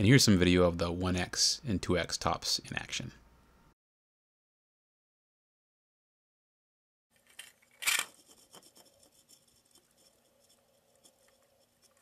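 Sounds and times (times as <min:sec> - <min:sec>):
spinning top rubbing on tile: 0:07.8 - 0:12.0.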